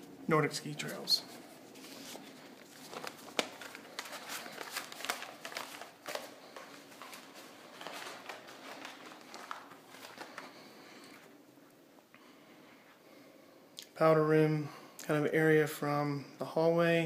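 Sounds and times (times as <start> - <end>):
footsteps: 0.7 - 11.3.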